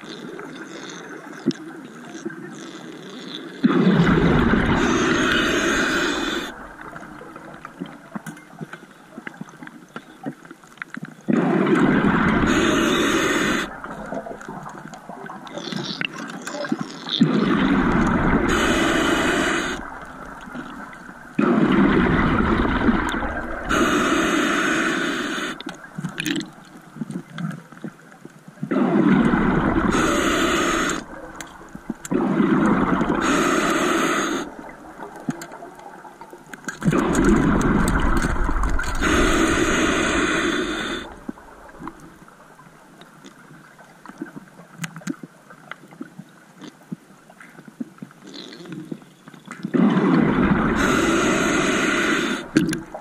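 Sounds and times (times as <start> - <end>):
exhaled bubbles bursting: 3.6 - 8.0, 11.3 - 24.6, 28.7 - 42.2, 49.7 - 53.0
diver breathing through regulator: 3.9 - 7.1, 11.4 - 13.9, 17.5 - 25.8, 28.7 - 31.3, 32.2 - 34.7, 36.9 - 42.0, 50.6 - 53.0.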